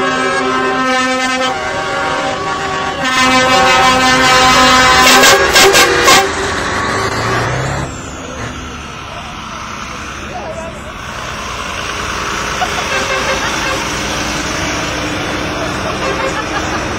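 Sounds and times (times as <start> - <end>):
lorry air horns: 0.0 - 6.6, 12.8 - 14.0, 15.9 - 16.7
lorry engine rumble passing: 0.0 - 16.9.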